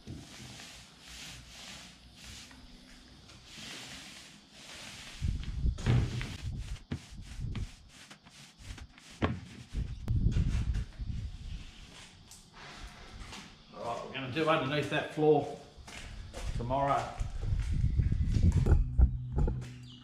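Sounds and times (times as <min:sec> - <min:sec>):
paint roller swishing: 0:00.0 - 0:12.3
low thumps: 0:17.3 - 0:20.0.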